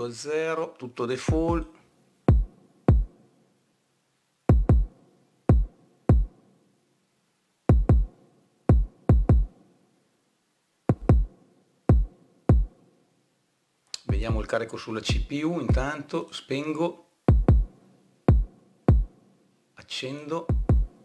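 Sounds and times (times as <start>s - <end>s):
kick drum hits: 1.3s - 1.7s, 2.3s - 3.1s, 4.5s - 4.9s, 5.5s - 6.3s, 7.7s - 8.1s, 8.7s - 9.5s, 10.9s - 11.3s, 11.9s - 12.7s, 15.1s - 15.9s, 17.3s - 17.7s, 18.3s - 19.1s, 20.5s - 20.9s.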